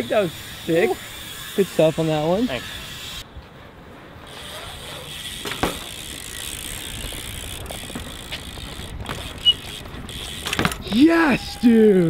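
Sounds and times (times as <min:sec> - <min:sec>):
bike rolling over concrete: 0:00.1 - 0:12.0
rear hub ticking: 0:04.7 - 0:11.6.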